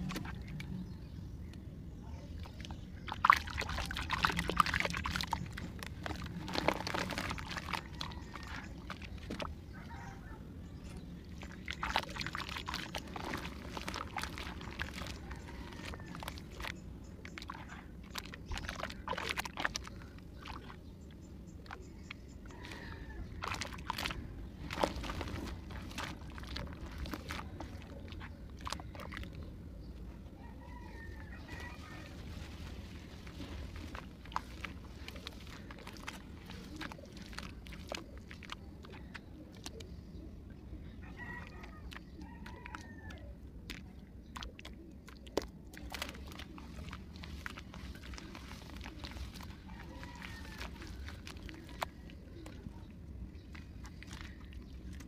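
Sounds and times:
clay lumps crackling: 0:00.0 - 0:00.8, 0:01.4 - 0:55.0
clay squelching in water: 0:00.0 - 0:00.8, 0:02.3 - 0:10.1, 0:10.7 - 0:30.1, 0:30.8 - 0:55.0
chickens calling: 0:05.3 - 0:11.1, 0:11.8 - 0:18.1, 0:21.4 - 0:39.8.

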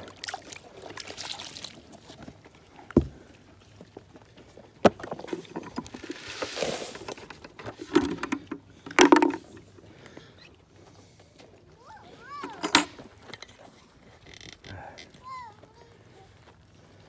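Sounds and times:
thumps: 0:07.7 - 0:09.6.

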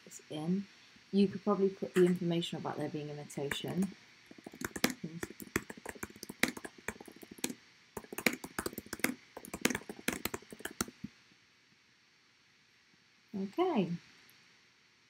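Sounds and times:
rapid keyboard typing: 0:03.5 - 0:11.1.

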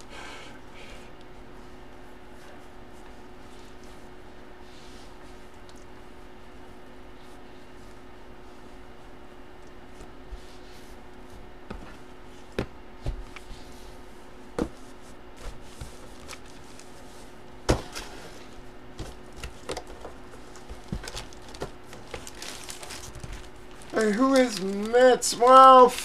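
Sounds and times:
faint steady hum: 0:00.0 - 0:26.0.

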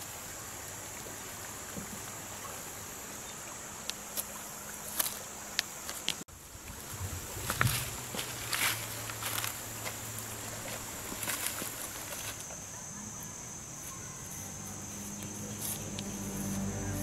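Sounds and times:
wind: 0:00.0 - 0:17.0
footsteps on loose stones: 0:07.3 - 0:12.5
river rushing: 0:14.6 - 0:17.0.

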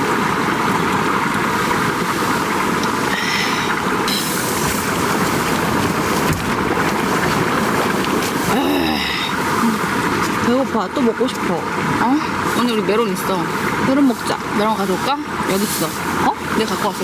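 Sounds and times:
strong wind against a tent: 0:00.0 - 0:17.0.

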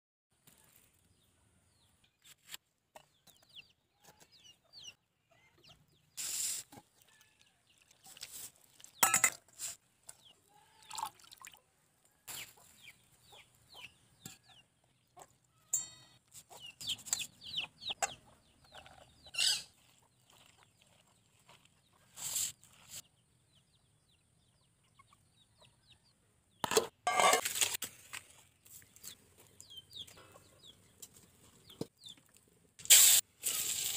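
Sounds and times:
knocks and clatters of cooking: 0:08.9 - 0:10.2, 0:26.6 - 0:27.9
chickens clucking: 0:12.3 - 0:15.5, 0:16.3 - 0:23.1, 0:24.1 - 0:27.2, 0:29.0 - 0:32.3.

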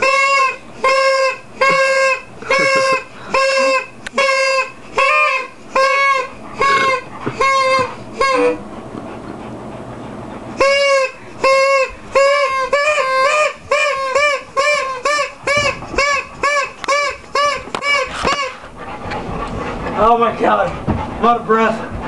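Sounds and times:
toy horn toots: 0:00.0 - 0:08.6, 0:10.6 - 0:18.6.

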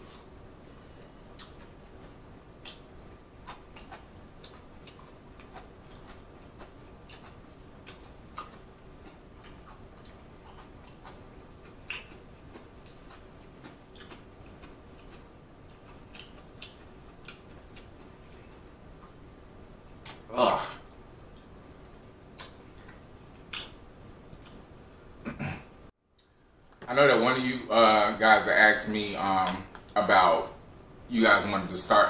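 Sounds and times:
person chewing cucumber: 0:00.0 - 0:19.2, 0:19.9 - 0:24.8.

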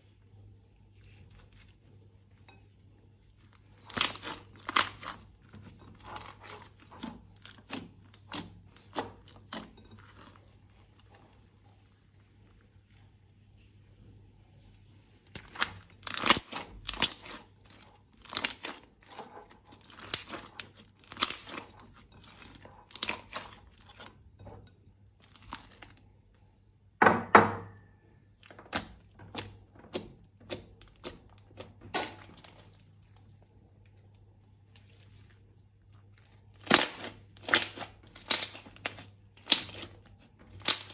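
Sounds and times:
thin plastic crinkling: 0:14.6 - 0:24.2.

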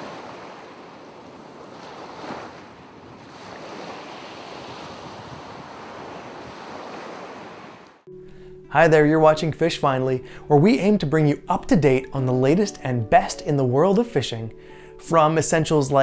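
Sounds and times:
ocean surf washing: 0:00.0 - 0:08.6.

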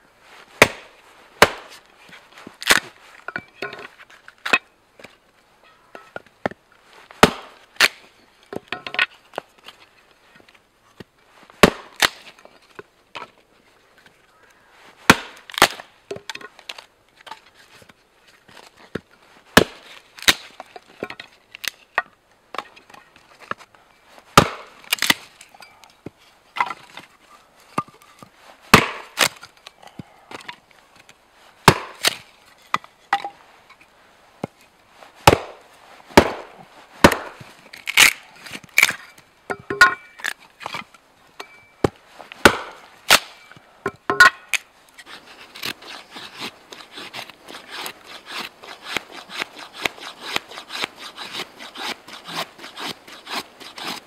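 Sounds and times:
axe splitting kindling: 0:00.6 - 0:01.8, 0:07.2 - 0:08.0, 0:11.6 - 0:12.4, 0:15.1 - 0:17.4, 0:19.6 - 0:23.6, 0:24.4 - 0:27.1, 0:27.7 - 0:29.7, 0:30.3 - 0:33.4, 0:35.2 - 0:43.4.

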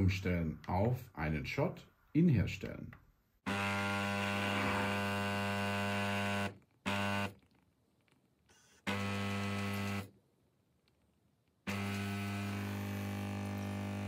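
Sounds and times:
espresso machine pump buzzing: 0:03.5 - 0:07.4, 0:08.6 - 0:10.1, 0:11.7 - 0:14.0.

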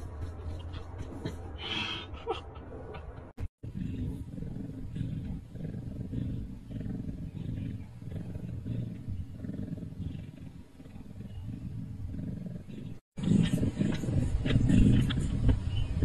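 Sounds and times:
kitten purring: 0:03.6 - 0:16.0.

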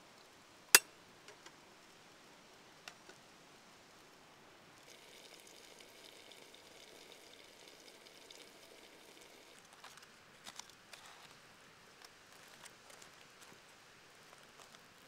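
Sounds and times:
campfire crackles: 0:00.2 - 0:15.0
water simmering in pot: 0:03.9 - 0:10.4.

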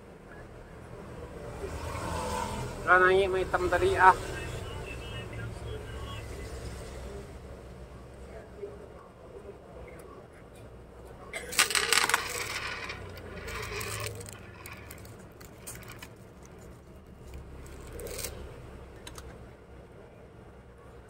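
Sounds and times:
metal parts clinking: 0:11.5 - 0:16.2, 0:17.7 - 0:18.4
metal scrape: 0:11.6 - 0:16.7.

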